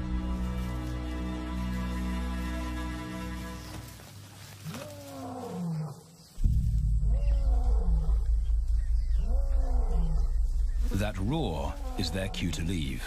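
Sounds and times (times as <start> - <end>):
deep steady rumble: 6.4 - 13.0
lion roaring: 7.0 - 12.9.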